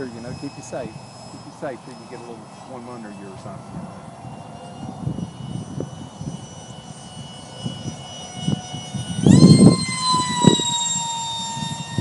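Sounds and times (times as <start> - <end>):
electric ducted fan whine: 0.0 - 12.0
wind rumble on microphone: 0.0 - 12.0.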